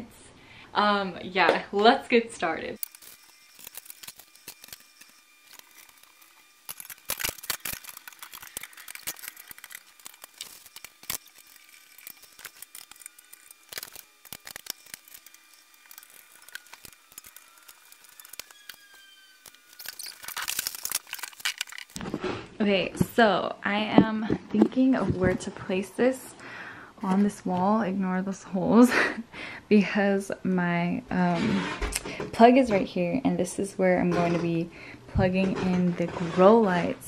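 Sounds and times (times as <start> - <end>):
metal parts clicking and rattling: 2.8 - 22.0.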